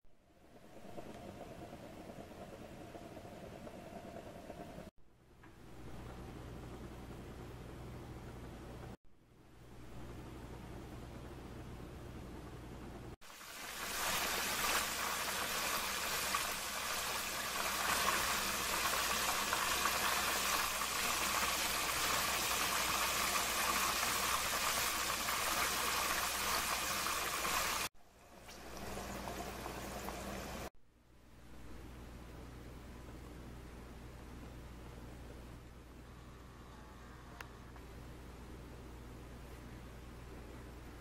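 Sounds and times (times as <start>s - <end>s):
meat deep-frying in hot oil: 13.2s - 30.7s.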